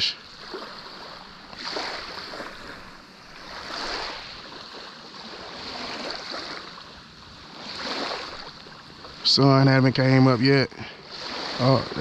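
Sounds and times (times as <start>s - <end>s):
small waves washing on sand: 0.0s - 12.0s.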